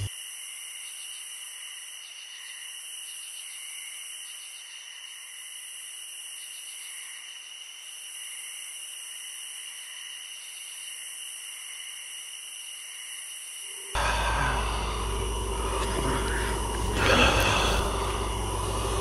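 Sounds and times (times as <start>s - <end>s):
low hum: 14.0s - 19.0s.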